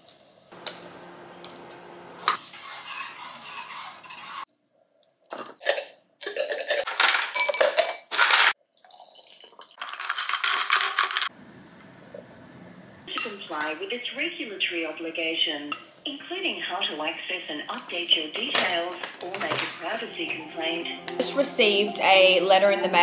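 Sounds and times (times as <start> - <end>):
dishes and cutlery clattering: 5.3 - 8.6.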